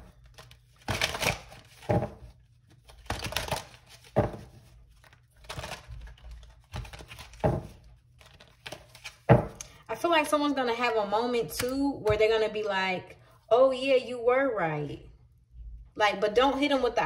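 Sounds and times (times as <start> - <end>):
cards shuffling: 0.0 - 9.6.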